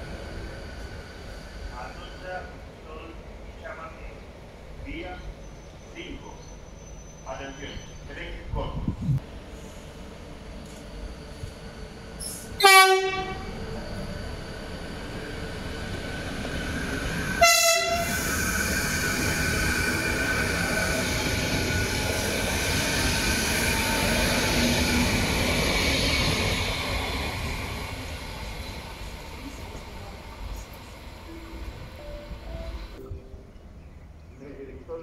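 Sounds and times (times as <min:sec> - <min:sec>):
train passing: 0:00.0 - 0:35.0
train horn toots: 0:12.6 - 0:13.6, 0:17.4 - 0:18.2.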